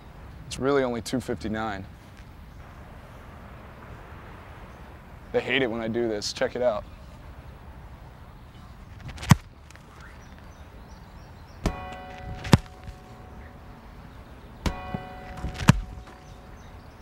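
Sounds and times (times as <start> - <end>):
boot kicking football: 9.0 - 10.0, 11.6 - 13.1, 14.6 - 16.3
ringing metallic clang: 11.6 - 13.8, 14.6 - 16.6.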